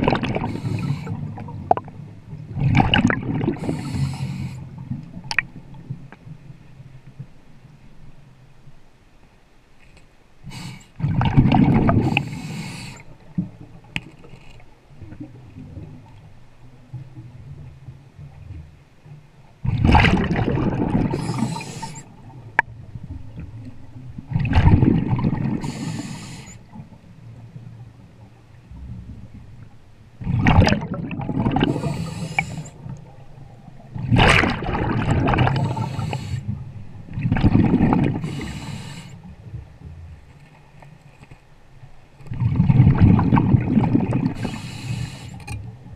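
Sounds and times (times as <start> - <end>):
low gurgle of bubbles: 0.0 - 3.9, 11.0 - 12.4, 19.6 - 26.1, 26.7 - 40.3, 42.2 - 44.8
underwater bubbles gushing: 0.0 - 6.0, 11.0 - 14.1, 19.6 - 29.6, 30.2 - 40.0, 42.2 - 45.9
diver breathing through regulator: 0.4 - 1.2, 3.5 - 4.7, 10.4 - 11.0, 11.9 - 13.1, 21.0 - 22.2, 25.5 - 26.7, 31.6 - 32.9, 35.5 - 36.6, 38.2 - 39.3, 44.4 - 45.6.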